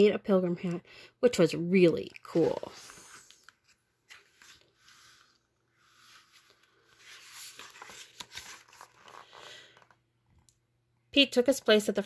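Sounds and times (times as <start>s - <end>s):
book pages rustling: 2.0s - 10.0s.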